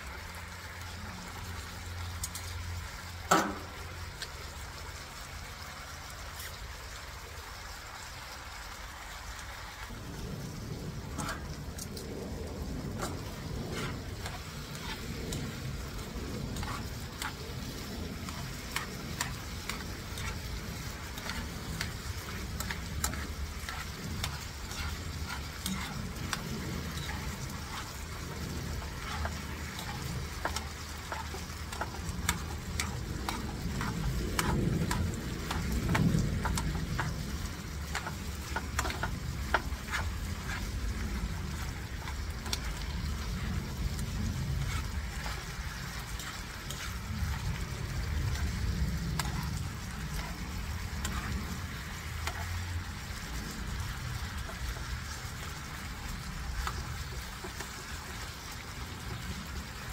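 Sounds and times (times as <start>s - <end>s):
meat sizzling in a frying pan: 0.0s - 59.9s
low rumble: 9.9s - 57.0s
metal utensils clicking on pan: 11.1s - 12.1s, 16.4s - 40.7s, 49.1s - 52.6s.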